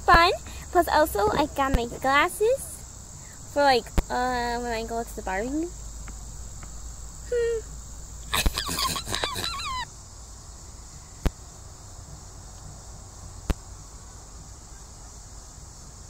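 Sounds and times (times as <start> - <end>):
crickets chirring: 0.0 - 16.0
person squealing: 8.3 - 9.9.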